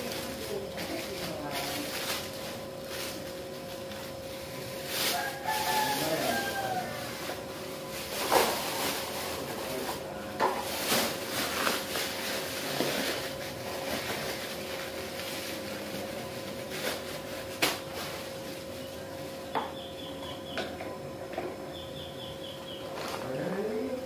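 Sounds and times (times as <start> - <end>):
plastic bags rustling: 0.0 - 19.5
faint steady hum: 0.0 - 24.0
sharp plastic crackles: 8.0 - 18.5.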